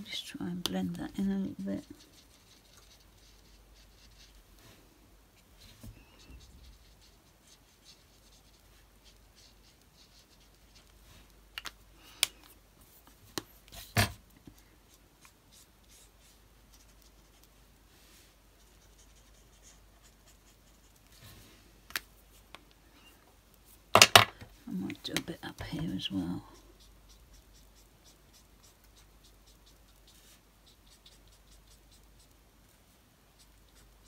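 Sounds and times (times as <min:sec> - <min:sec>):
marker rubbing on card: 0:01.2 - 0:04.4, 0:05.6 - 0:10.9, 0:14.9 - 0:17.5, 0:18.6 - 0:21.2, 0:25.6 - 0:32.4, 0:33.3 - 0:34.0.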